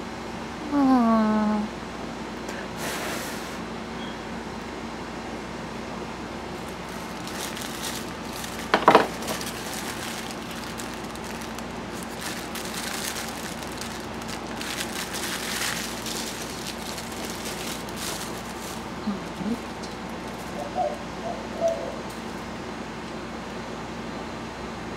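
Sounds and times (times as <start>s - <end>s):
wrapping paper rustling: 6.6s - 20.6s.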